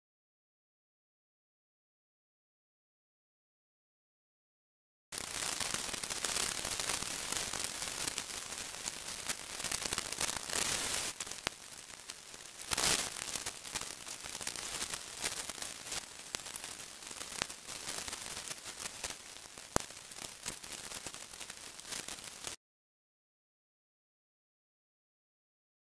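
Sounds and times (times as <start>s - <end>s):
faint crackles and clicks: 5.1s - 22.6s
steady hiss: 5.2s - 22.6s.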